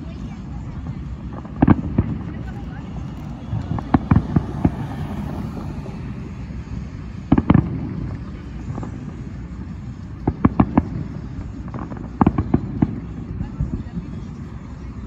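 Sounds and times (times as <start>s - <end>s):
fireworks bangs: 0.9s - 8.2s.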